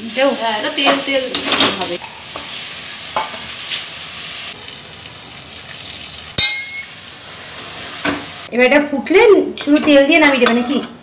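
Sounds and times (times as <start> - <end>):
fish sizzling in hot oil: 0.0 - 8.5
sharp metal clink: 6.4 - 6.9.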